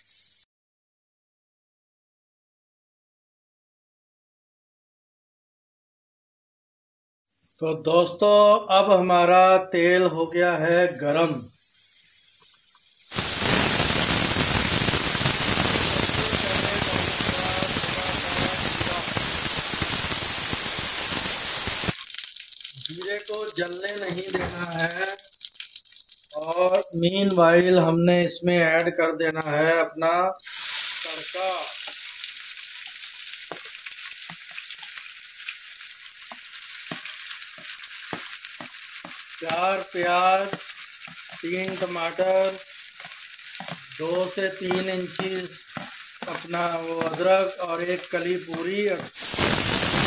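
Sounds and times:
seeds sizzling in hot oil: 0:00.0 - 0:00.5, 0:07.3 - 0:50.0
pops and crackles: 0:13.1 - 0:29.5, 0:31.4 - 0:50.0.

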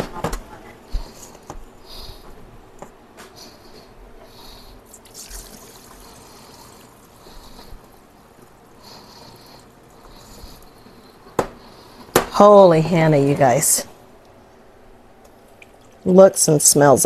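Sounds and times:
liquid trickling into metal colander: 0:04.9 - 0:07.2.

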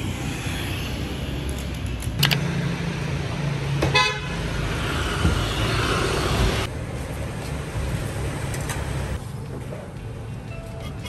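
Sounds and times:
motorbike passing: 0:02.2 - 0:06.7.

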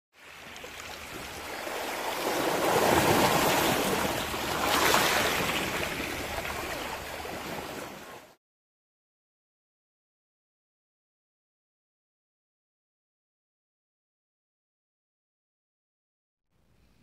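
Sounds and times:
sea waves washing onto shore: 0:00.2 - 0:08.4.

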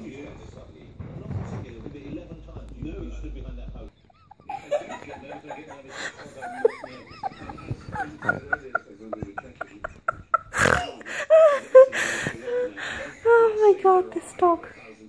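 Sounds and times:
children giggling and laughing: 0:04.1 - 0:12.0
breathy burst of laughter: 0:04.1 - 0:13.2.

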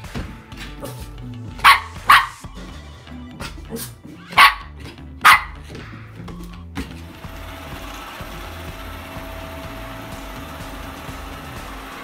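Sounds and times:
background music: 0:00.0 - 0:12.0
dog barking: 0:01.6 - 0:02.4, 0:03.7 - 0:05.7.

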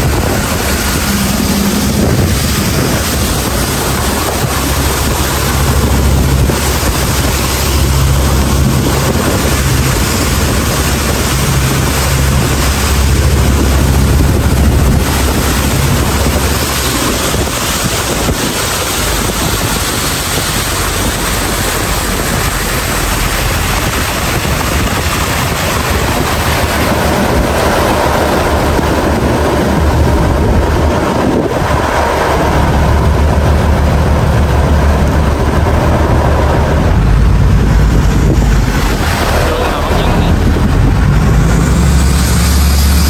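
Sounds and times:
boat engine drone: 0:00.0 - 0:43.0
water spray rushing: 0:00.0 - 0:43.0
wind on microphone: 0:00.0 - 0:43.0.

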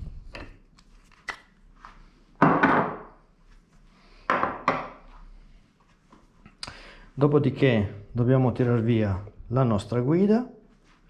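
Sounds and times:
loud knock on a work table: 0:02.4 - 0:03.1.

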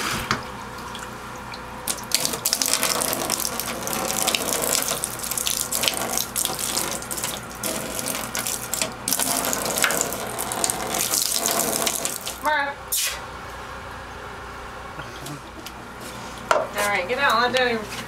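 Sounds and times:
faucet running water: 0:00.0 - 0:12.5.

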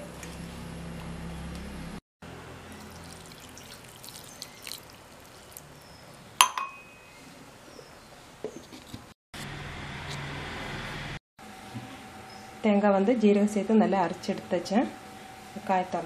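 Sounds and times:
water pouring into metal jar: 0:02.8 - 0:05.6.

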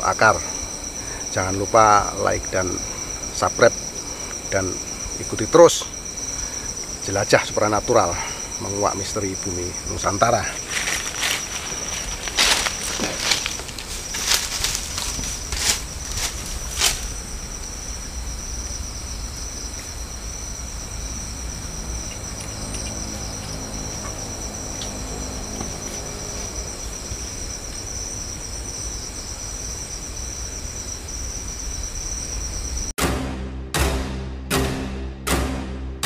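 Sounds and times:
insects trilling: 0:00.0 - 0:32.9
music with heavy drums: 0:33.0 - 0:36.0.

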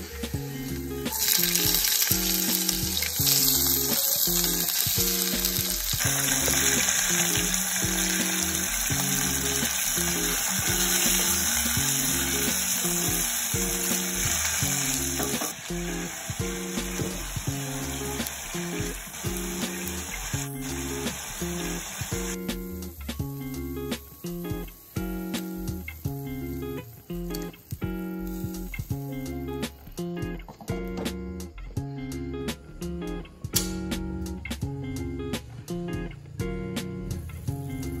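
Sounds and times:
food sizzling in hot oil: 0:00.0 - 0:30.1
background music with steady beat: 0:00.0 - 0:38.0.

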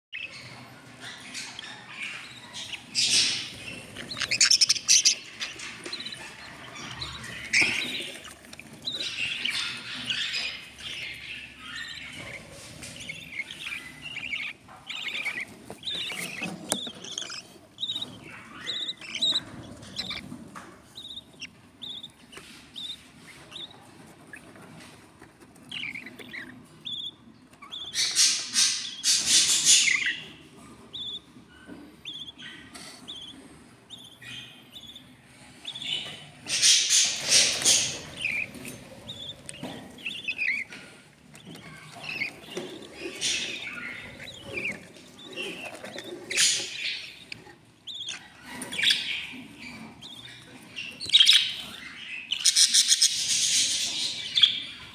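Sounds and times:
budgerigars chirping: 0:00.1 - 0:54.9
high bird peeps: 0:00.1 - 0:54.9
raspy bird calls: 0:01.0 - 0:20.4, 0:32.0 - 0:54.9.

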